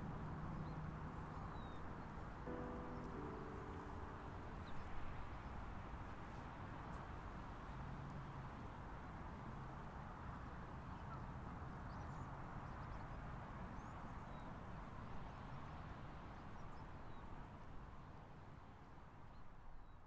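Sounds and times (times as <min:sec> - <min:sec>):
low hum: 0:02.5 - 0:05.3.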